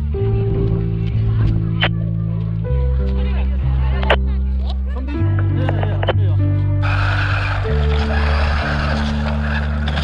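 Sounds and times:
background music with bass line: 0.0 - 10.0
rc car motor: 6.8 - 10.0
tyres rolling on rough paving: 6.8 - 10.0.

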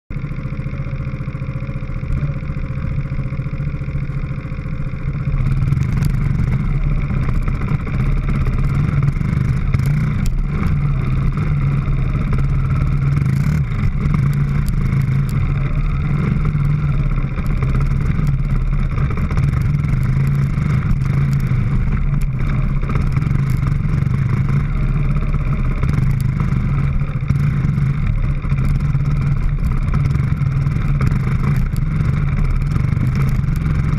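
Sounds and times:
dirt bike engines running: 0.1 - 33.9.

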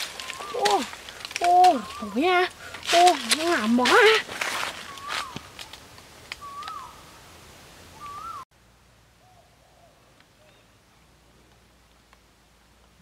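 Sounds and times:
bird whistled hooting calls: 0.1 - 0.9, 4.8 - 5.4, 6.4 - 7.0, 8.0 - 8.4.

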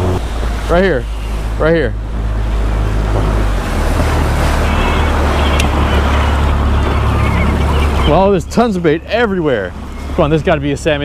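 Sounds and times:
wind on microphone: 0.0 - 8.4
outboard motor running: 0.0 - 11.0
water rushing past hull: 0.0 - 11.0.

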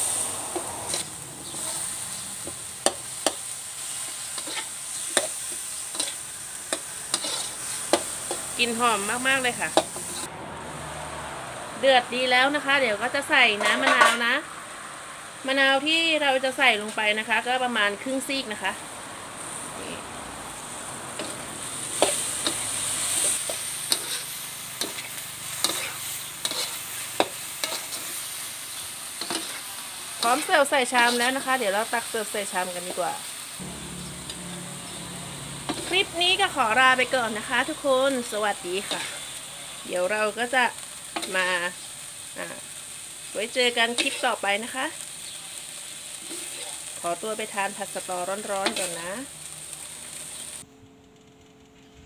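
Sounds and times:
food sizzling in a wok: 0.0 - 50.7.

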